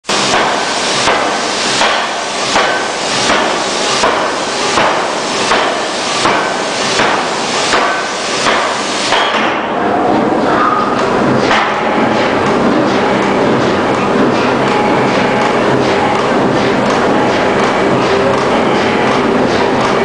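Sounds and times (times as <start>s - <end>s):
steady machinery noise: 0.0s - 20.0s
forging hammer striking metal: 0.1s - 9.7s.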